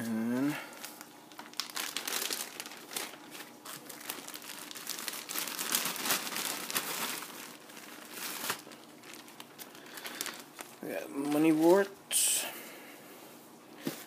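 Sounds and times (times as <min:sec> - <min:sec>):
plastic bags crinkling: 0:00.4 - 0:11.9.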